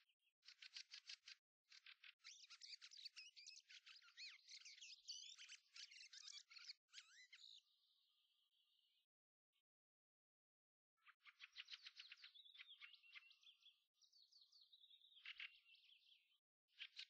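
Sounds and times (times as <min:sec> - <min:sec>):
songbird warbling and trilling: 0:02.3 - 0:07.6.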